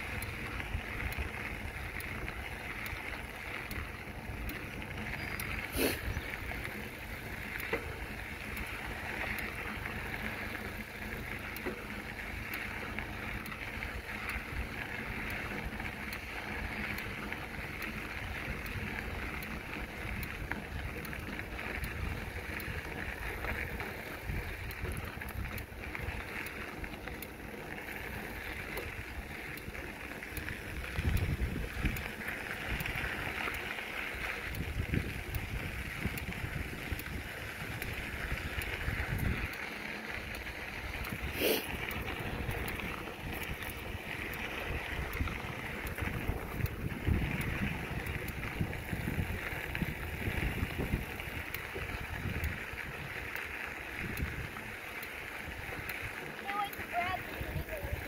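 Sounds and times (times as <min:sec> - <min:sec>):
bicycle tyres rolling on trail: 0:00.0 - 0:58.0
wind buffeting microphone: 0:13.7 - 0:27.2, 0:28.0 - 0:58.0.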